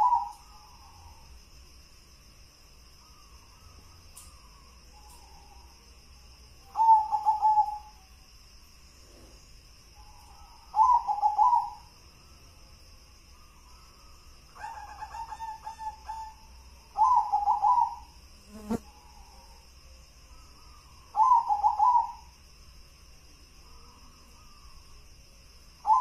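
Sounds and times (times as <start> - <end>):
dove cooing: 0.0 - 0.4, 6.8 - 7.9, 10.8 - 11.8, 17.0 - 18.1, 21.2 - 22.2.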